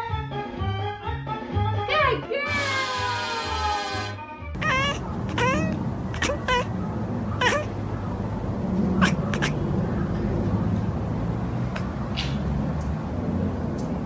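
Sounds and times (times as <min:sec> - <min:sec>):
cat chirpy meows: 0:02.7 - 0:06.7, 0:07.4 - 0:07.8, 0:08.9 - 0:09.6.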